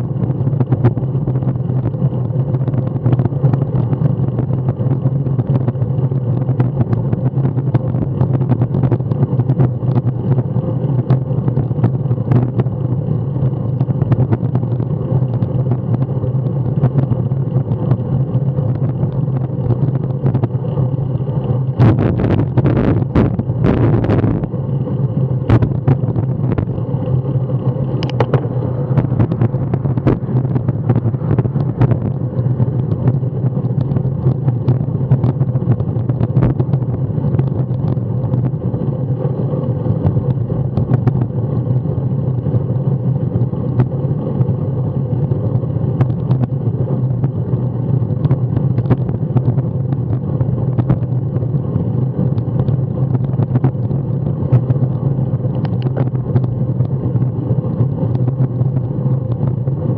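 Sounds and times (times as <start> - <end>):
bicycle knocks and rattles: 0.0 - 59.9
road rumble: 0.0 - 59.9
wind rushing over microphone: 0.0 - 59.9.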